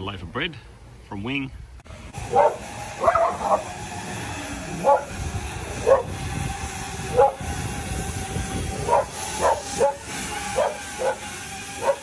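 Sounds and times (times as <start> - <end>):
drone rotors humming: 1.7 - 12.0
dog barking: 2.3 - 3.6, 4.8 - 5.1, 8.9 - 10.0, 10.6 - 11.2, 11.8 - 12.0.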